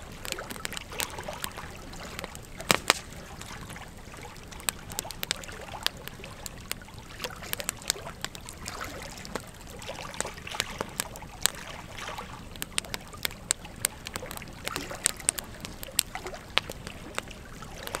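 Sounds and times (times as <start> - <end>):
logs crackling and popping: 0.0 - 18.0
soft rush of flame: 0.0 - 18.0.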